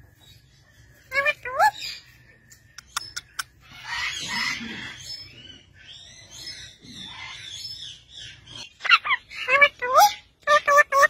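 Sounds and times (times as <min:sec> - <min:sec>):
parakeets giving raspy calls: 0:02.8 - 0:11.0.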